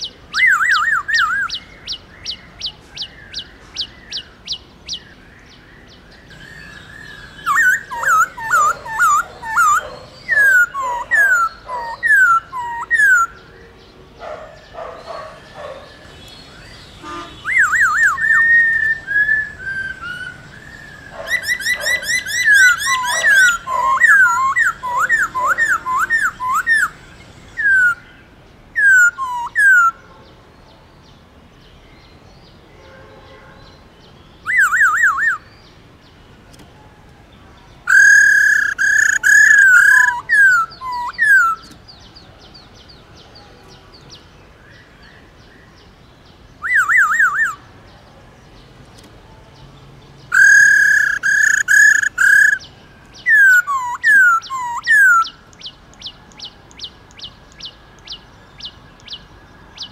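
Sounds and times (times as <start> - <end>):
bird singing loud clear whistles: 0.0 - 13.6, 14.3 - 30.0, 32.8 - 35.7, 37.8 - 42.6, 46.5 - 47.7, 50.2 - 59.9.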